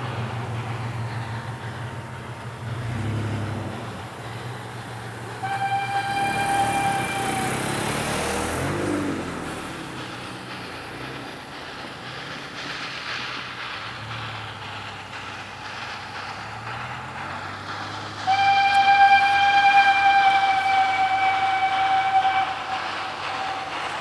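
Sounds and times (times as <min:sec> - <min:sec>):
steam locomotive whistle: 0:05.1 - 0:09.6, 0:18.2 - 0:24.0.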